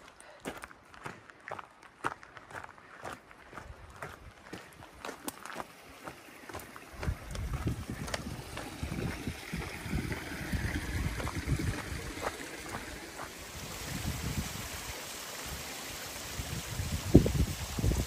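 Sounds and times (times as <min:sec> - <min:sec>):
gusty wind buffeting microphone: 0:06.9 - 0:14.8, 0:16.3 - 0:18.0.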